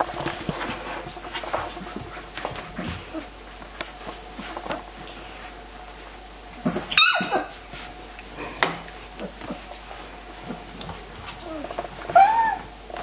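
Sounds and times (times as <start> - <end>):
rustling clicks on bedding: 0.0 - 6.9
puppy high cry: 6.7 - 7.6, 11.5 - 12.7
puppies squeaking and whimpering: 11.4 - 12.7.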